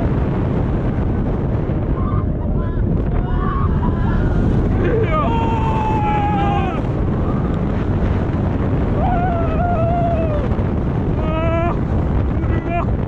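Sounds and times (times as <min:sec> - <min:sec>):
roller coaster train on track: 0:00.0 - 0:13.0
wind buffeting microphone: 0:00.0 - 0:13.0
riders screaming: 0:03.2 - 0:07.4, 0:08.8 - 0:10.5.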